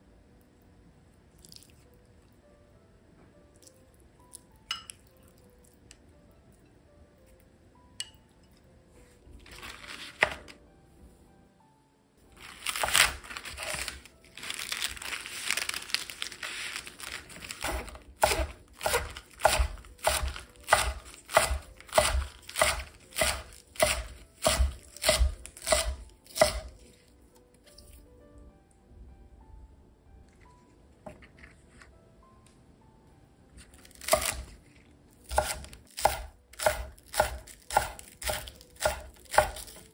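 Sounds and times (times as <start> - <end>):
lettuce leaves rustling: 9.4 - 10.4, 12.4 - 26.7
knife slicing onto wooden board: 34.0 - 34.6.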